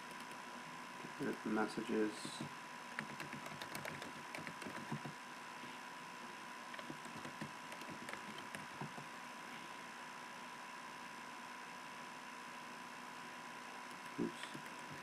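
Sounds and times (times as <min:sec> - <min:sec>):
computer keyboard typing: 0:00.0 - 0:00.4, 0:03.0 - 0:05.2, 0:06.7 - 0:09.1, 0:13.9 - 0:15.0.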